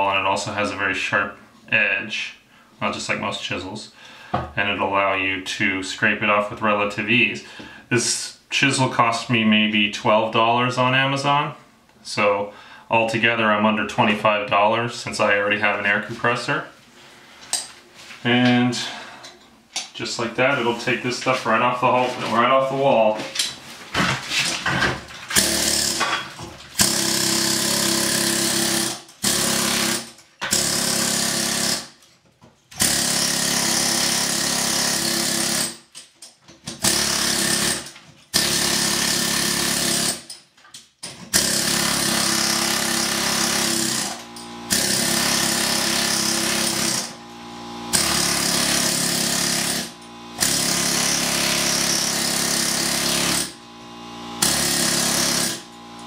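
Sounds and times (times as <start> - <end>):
pneumatic air hammer chipping plaster: 25.3 - 32.0, 32.8 - 35.9, 36.7 - 40.4, 41.2 - 56.0.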